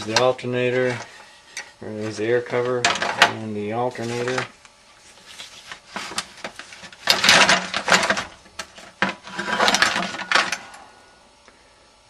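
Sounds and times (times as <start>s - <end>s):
parts rattling in plastic crate: 5.7s - 10.7s.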